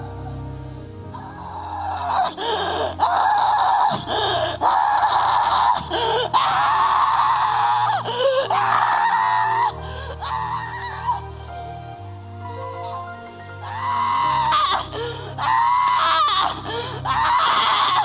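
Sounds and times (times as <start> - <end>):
soft background music: 0.0 - 18.0
woman screaming into microphone: 13.6 - 18.0.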